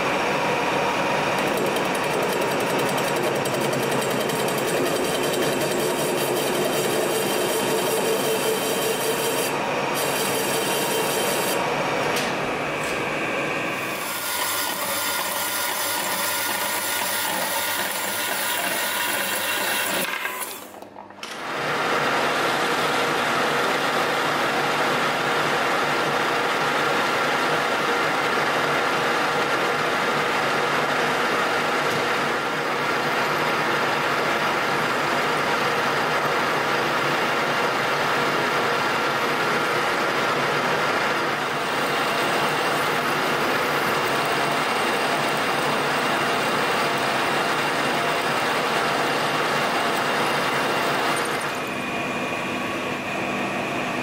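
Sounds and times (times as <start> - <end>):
bandsaw cutting steel bar: 1.4 - 11.7, 13.8 - 21.4
lathe turning steel: 1.4 - 11.7, 13.6 - 21.6, 41.4 - 51.7.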